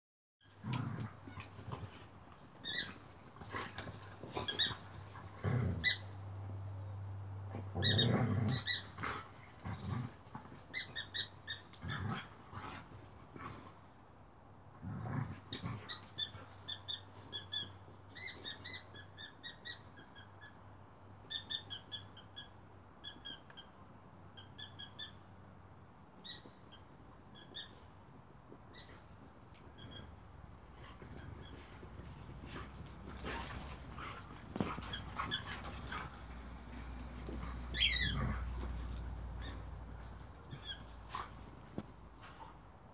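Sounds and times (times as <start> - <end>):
squeaky toy squeaks: 2.6 - 3.0, 4.4 - 4.9, 5.8 - 6.1, 7.8 - 9.0, 10.7 - 12.3, 15.9 - 20.6, 21.3 - 23.7, 24.4 - 25.2, 26.2 - 27.8, 29.7 - 30.2, 31.1 - 36.2, 37.4 - 38.3, 40.4 - 41.3.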